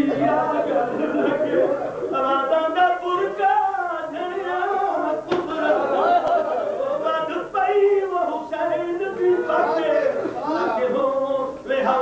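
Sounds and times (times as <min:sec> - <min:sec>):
man chanting: 0:02.1 - 0:05.9, 0:06.9 - 0:12.0.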